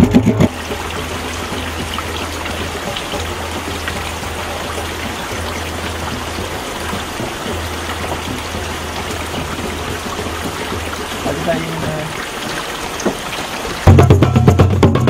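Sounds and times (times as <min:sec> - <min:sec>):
low hum: 0:00.0 - 0:11.4
stream water flowing: 0:00.0 - 0:15.0.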